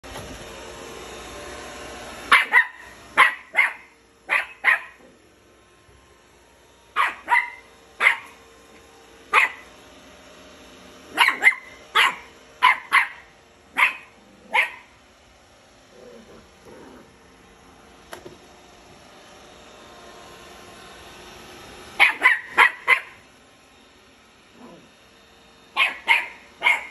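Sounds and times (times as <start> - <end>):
puppy yapping: 2.3 - 5.0, 7.0 - 8.3, 11.1 - 13.2, 13.8 - 14.9, 22.0 - 23.2, 25.8 - 26.9.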